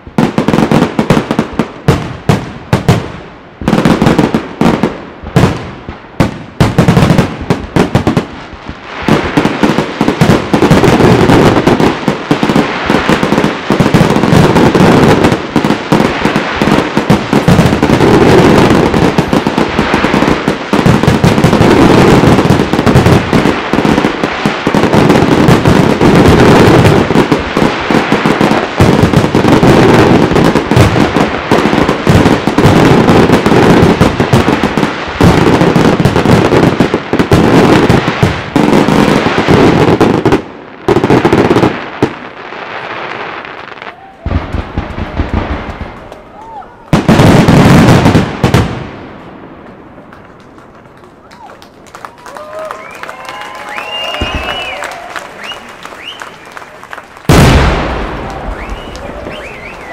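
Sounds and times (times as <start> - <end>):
firework crackling: 0.0 - 59.9
firework shells bursting: 52.8 - 59.9.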